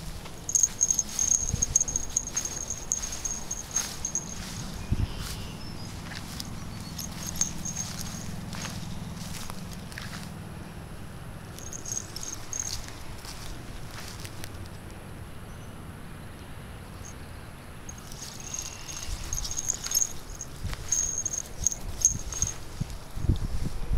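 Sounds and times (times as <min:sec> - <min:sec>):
rustling in grass: 0:00.0 - 0:10.4, 0:11.6 - 0:14.7, 0:17.9 - 0:23.8
high-pitched chirping: 0:00.4 - 0:05.6.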